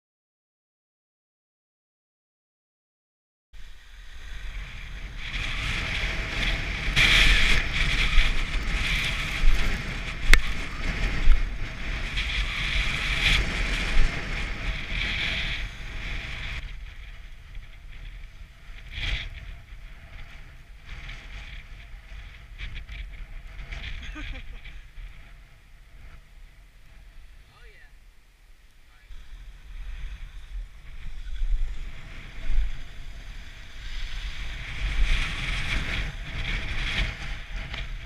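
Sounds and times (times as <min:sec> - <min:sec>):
wind buffeting microphone: 0:03.6 - 0:38.0
snowboard edge scraping snow: 0:04.1 - 0:16.6, 0:29.2 - 0:38.0.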